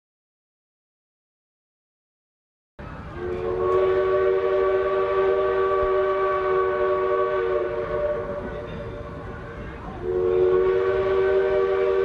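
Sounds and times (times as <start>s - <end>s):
locomotive horn chord: 3.1s - 12.0s.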